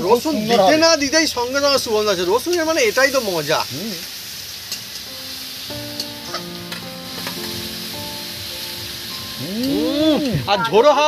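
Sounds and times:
food sizzling in hot oil: 0.0s - 11.0s
faint music with held notes: 4.6s - 11.0s.

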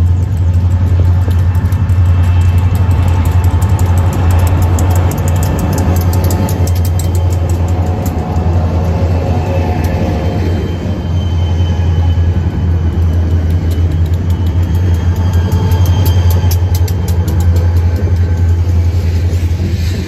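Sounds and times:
locomotive engines droning: 0.0s - 20.0s
sharp clicks: 0.2s - 10.2s, 12.8s - 18.7s.

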